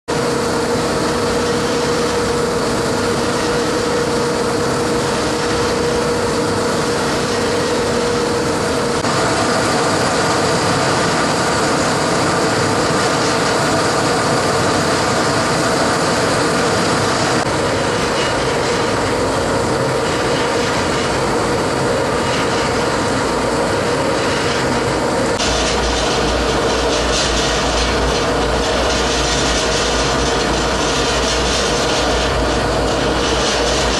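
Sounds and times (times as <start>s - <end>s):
mixer motor humming: 0.1s - 33.9s.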